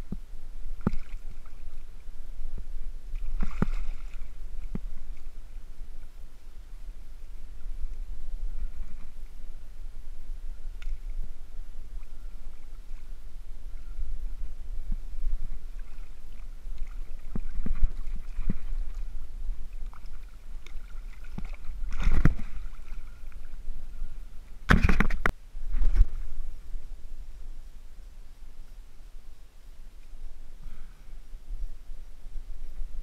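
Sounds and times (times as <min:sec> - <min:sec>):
wind rumble on microphone: 0:00.0 - 0:33.0
water sloshing in surf: 0:00.7 - 0:09.8, 0:10.6 - 0:26.4.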